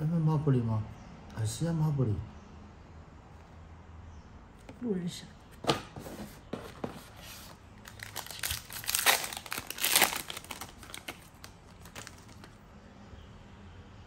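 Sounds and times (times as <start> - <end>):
wrapper crinkling: 7.4 - 12.6.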